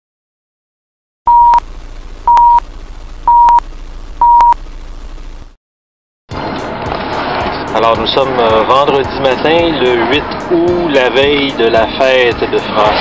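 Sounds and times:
short beeps: 0:01.3 - 0:01.6, 0:02.3 - 0:02.6, 0:03.3 - 0:03.6, 0:04.2 - 0:04.6
film hiss: 0:01.4 - 0:05.5.

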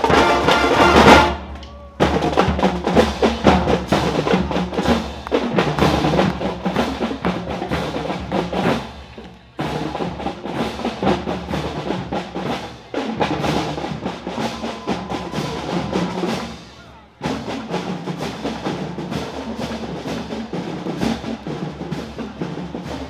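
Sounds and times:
marching drumline cadence: 0:00.0 - 0:23.0.

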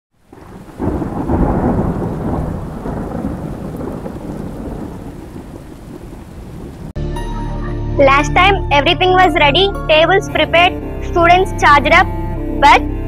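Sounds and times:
rain hissing: 0:00.2 - 0:07.0
thunder rumbling: 0:00.2 - 0:07.0.

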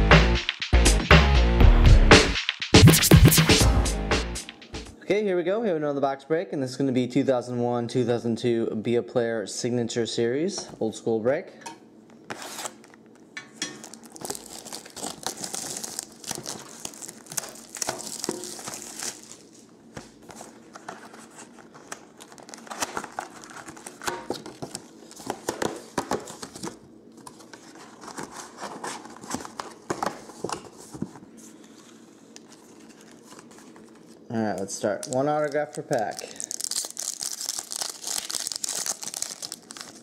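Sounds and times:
plastic wrap crinkling and tearing: 0:13.8 - 0:19.7, 0:20.4 - 0:25.4, 0:32.3 - 0:40.0.

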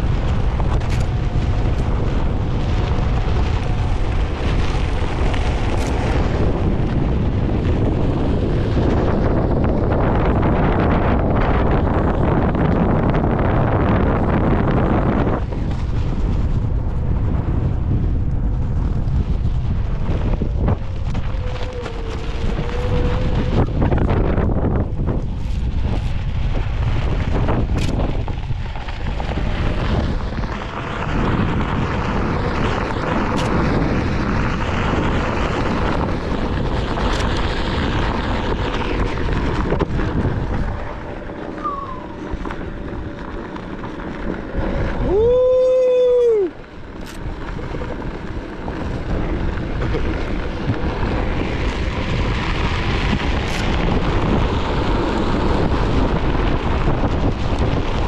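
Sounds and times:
tyre rolling on loose dirt: 0:00.0 - 0:58.0
wind buffeting microphone: 0:00.0 - 0:58.0
loud tone rising and falling: 0:41.5 - 0:42.4.

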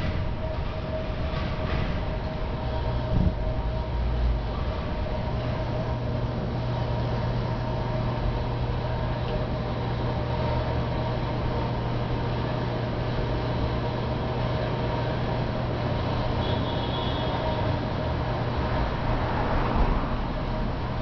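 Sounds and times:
machinery humming: 0:00.0 - 0:21.0
street noise: 0:00.0 - 0:21.0.

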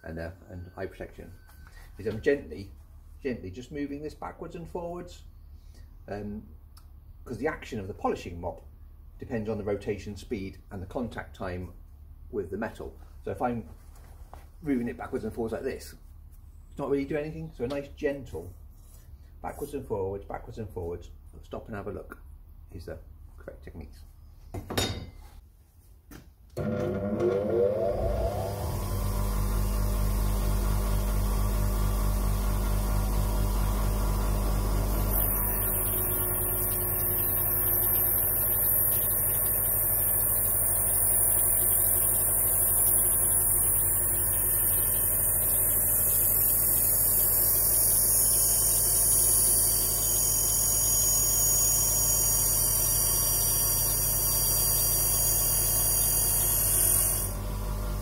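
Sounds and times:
bench grinder motor running: 0:26.6 - 0:58.0.

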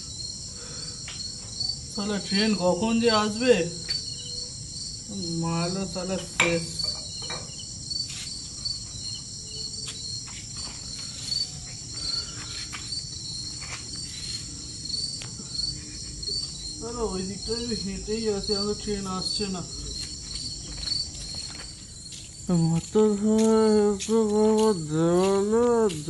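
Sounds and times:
crickets chirping: 0:00.0 - 0:26.0
person humming: 0:22.5 - 0:26.0.

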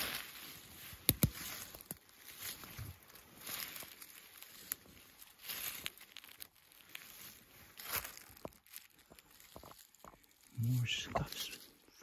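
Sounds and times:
twigs snapping underfoot: 0:00.0 - 0:11.4
footsteps crunching through dry leaves: 0:00.0 - 0:12.0.

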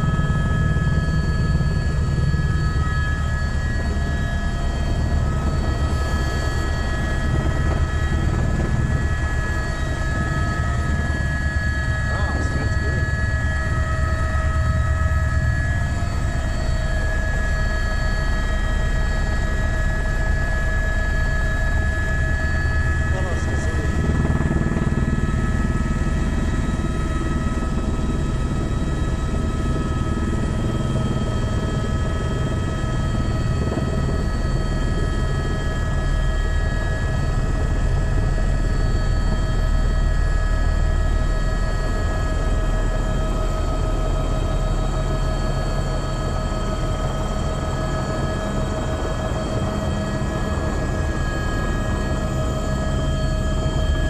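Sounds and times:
helicopter rotor beat: 0:00.0 - 0:54.0
helicopter turbine whine: 0:00.0 - 0:54.0.

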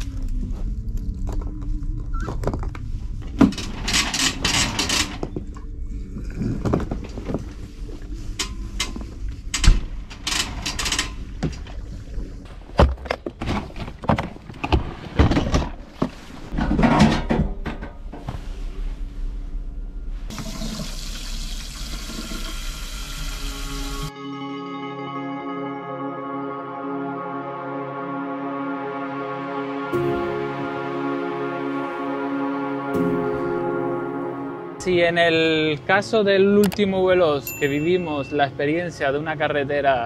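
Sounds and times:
steady low rumble: 0:00.0 - 0:12.8, 0:17.4 - 0:20.3.

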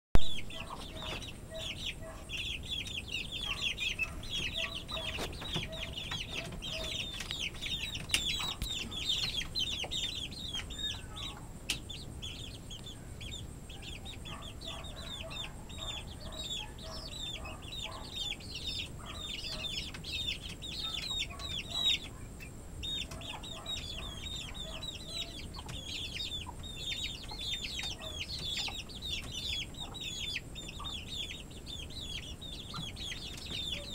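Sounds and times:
chicks peeping: 0:00.2 - 0:33.9
hen clucking softly: 0:00.4 - 0:11.9.

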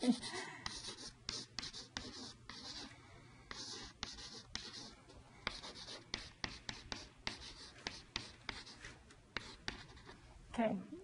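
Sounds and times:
chalk tapping on chalkboard: 0:00.0 - 0:02.9, 0:05.5 - 0:08.8, 0:09.4 - 0:10.0.

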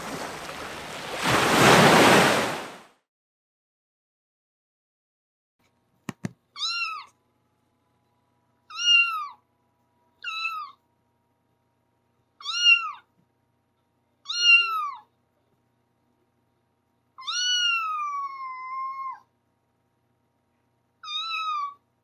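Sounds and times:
cat meowing: 0:06.6 - 0:07.2, 0:08.7 - 0:09.4, 0:10.2 - 0:10.8, 0:12.4 - 0:13.1, 0:14.2 - 0:15.1, 0:17.2 - 0:19.3, 0:21.0 - 0:21.8.

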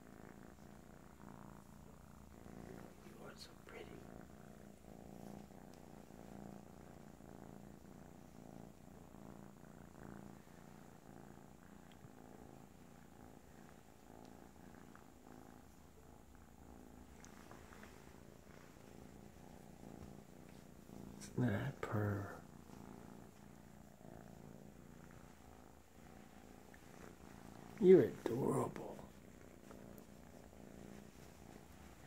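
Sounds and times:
kitten purring: 0:00.0 - 0:32.0.

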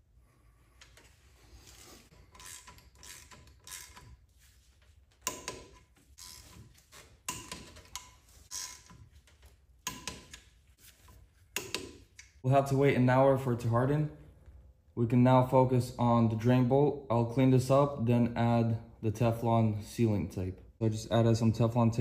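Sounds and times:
hand wrench clicking: 0:02.2 - 0:04.2, 0:05.2 - 0:06.6, 0:07.3 - 0:09.0, 0:09.8 - 0:10.5, 0:11.6 - 0:12.4.

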